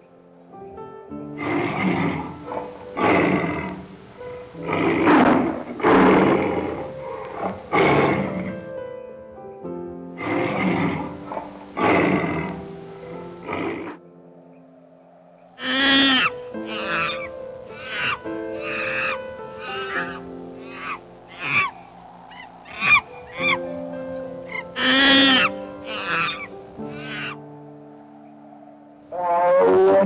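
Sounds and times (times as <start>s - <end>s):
soft background music: 0.0s - 30.0s
large animal calling loudly: 1.4s - 8.6s, 10.2s - 14.0s, 15.6s - 27.4s, 29.1s - 30.0s.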